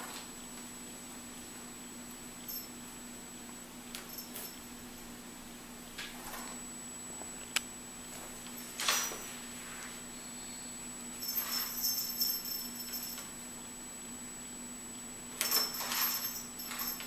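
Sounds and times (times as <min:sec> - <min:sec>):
small bell jingling: 0:02.5 - 0:02.8, 0:04.0 - 0:05.1, 0:11.2 - 0:13.3, 0:15.4 - 0:17.0.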